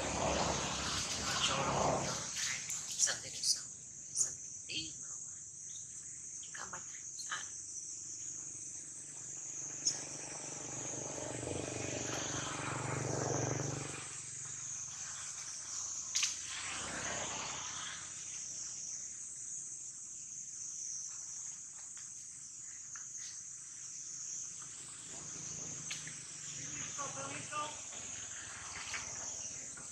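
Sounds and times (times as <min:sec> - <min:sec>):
rushing noise: 0:00.0 - 0:02.4
high-pitched insect chorus: 0:00.0 - 0:29.9.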